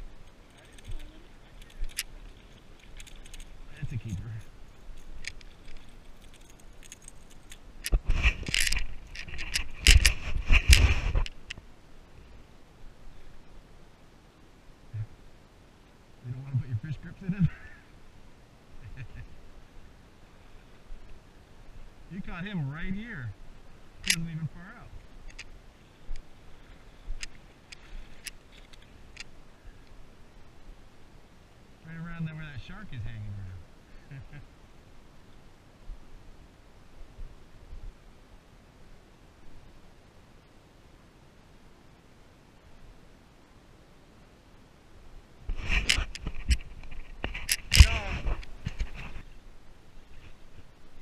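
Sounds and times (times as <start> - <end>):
net frame and tackle clinking: 0.1 - 7.7
wind rumble on microphone: 7.8 - 11.6.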